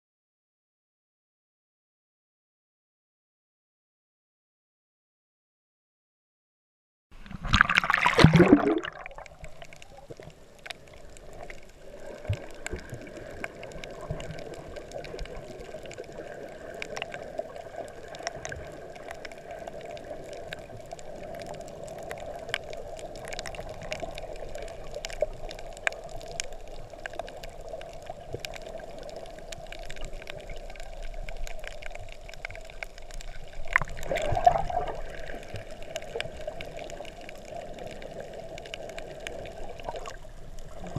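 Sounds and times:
muffled underwater wash: 7.1s - 40.9s
loud splashing: 7.4s - 9.1s.

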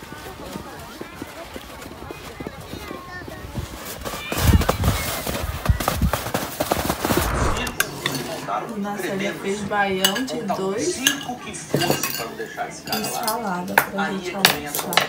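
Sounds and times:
rushing outdoor noise: 6.7s - 8.8s.

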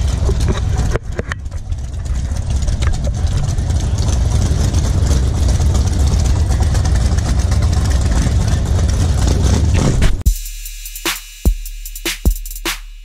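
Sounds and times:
dense low rumble: 0.0s - 10.4s
music with drum-machine beat: 10.0s - 13.0s.

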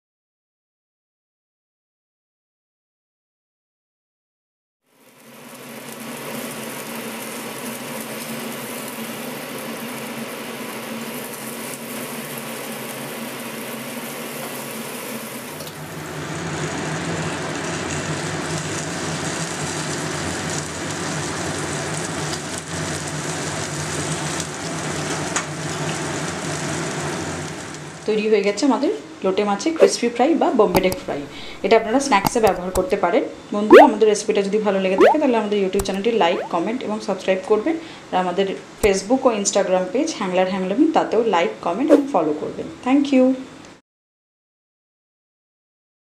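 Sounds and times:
fish sizzling in a frying pan: 4.9s - 28.0s.

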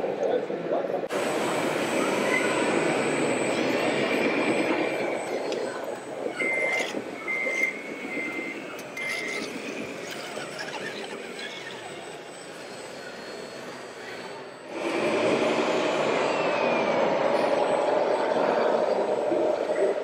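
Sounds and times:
steady background noise: 0.0s - 20.0s
back-up alarm beeping: 2.0s - 9.5s.

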